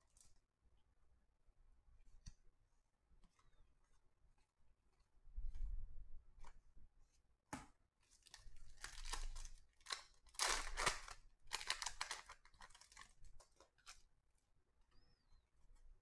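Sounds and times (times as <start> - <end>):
foil wrapper tearing and crinkling: 8.2 - 13.1.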